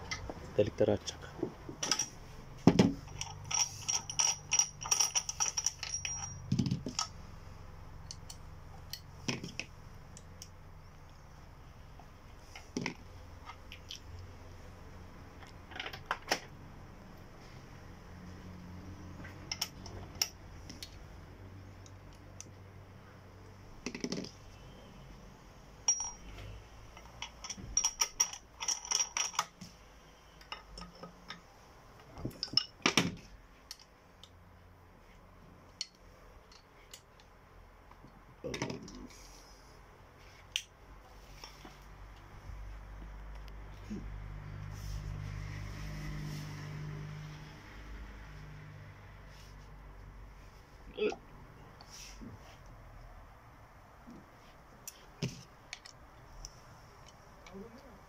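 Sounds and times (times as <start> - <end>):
metallic clinks and taps: 1.7 - 7.2, 19.2 - 21.0, 25.8 - 29.7, 32.2 - 33.0.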